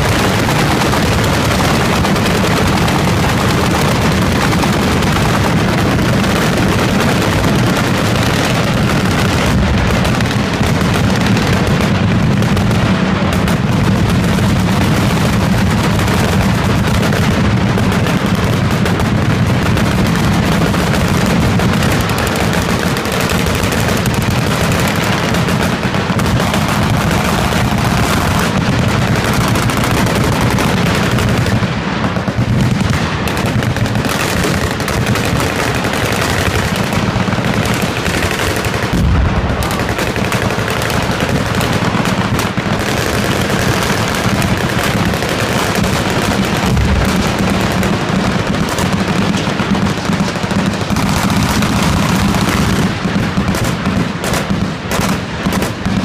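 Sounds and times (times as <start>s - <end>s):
machine guns firing: 0.0s - 56.0s
deep explosion boom: 7.2s - 12.7s, 38.9s - 39.9s, 46.2s - 49.7s.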